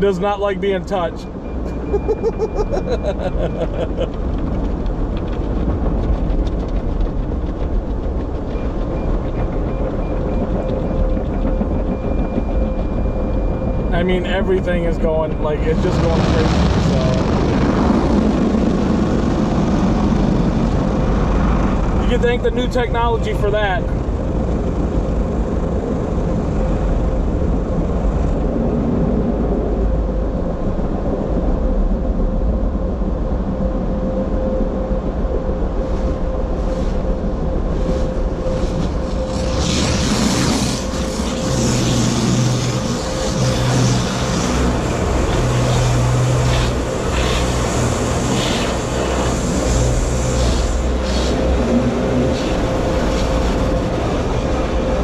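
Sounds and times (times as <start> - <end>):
car warning tone: 0.0 - 4.0, 8.5 - 17.4
car wash machinery rumble: 0.0 - 55.0
low machinery pulses: 0.8 - 55.0.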